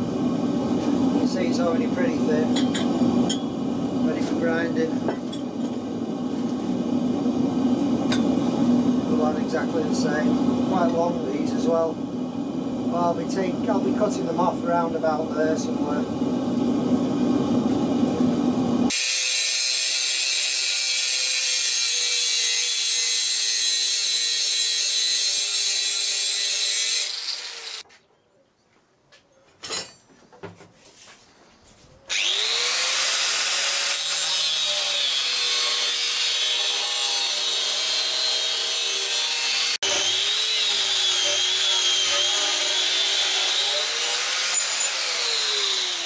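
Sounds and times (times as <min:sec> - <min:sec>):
angle grinder cutting steel: 0:18.9 - 0:27.8, 0:32.1 - 0:46.0.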